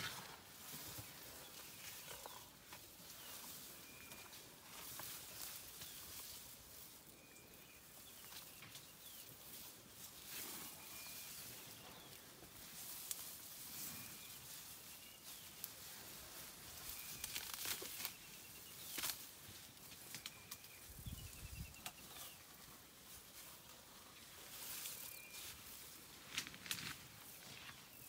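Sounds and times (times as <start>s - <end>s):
grass rustling: 0.0s - 28.0s
faint high chirps: 3.1s - 9.3s, 10.4s - 12.2s
stems snapping and tearing: 17.2s - 18.2s, 18.9s - 19.2s.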